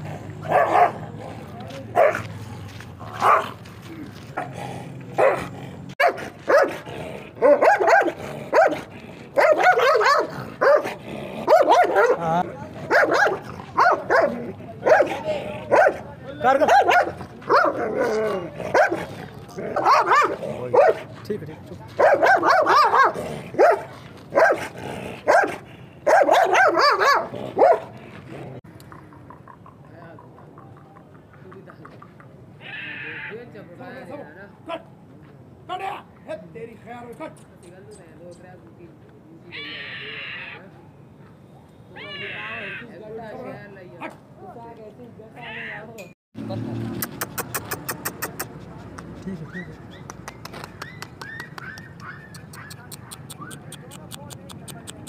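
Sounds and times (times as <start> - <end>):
large dog barking: 0.0 - 3.6, 4.4 - 21.1, 22.0 - 28.0.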